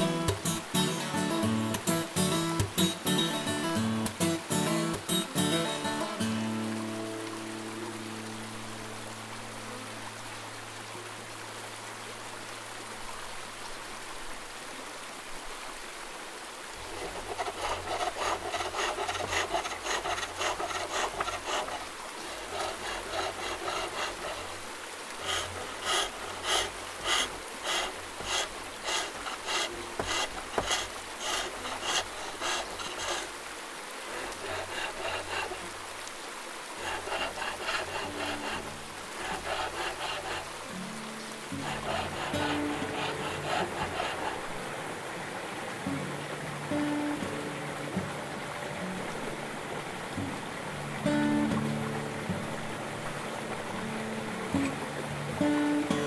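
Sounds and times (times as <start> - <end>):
steady hiss: 0.0 - 56.0
turning tool shaving wood: 16.9 - 33.4, 34.0 - 35.7, 36.8 - 40.6, 41.5 - 44.6.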